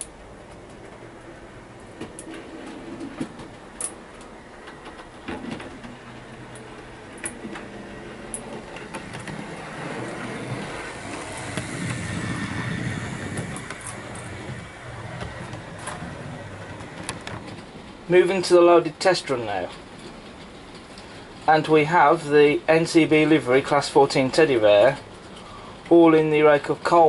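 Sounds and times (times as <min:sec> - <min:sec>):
model train running on track: 0:03.8 - 0:27.0.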